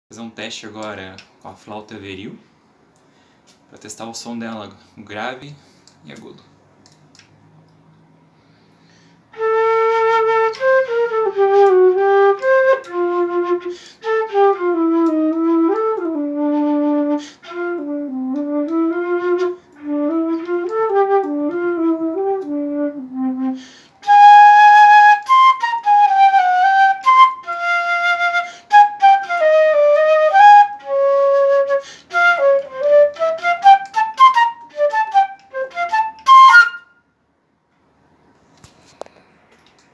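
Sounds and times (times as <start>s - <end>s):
solo flute melody: 9.3s - 37.0s.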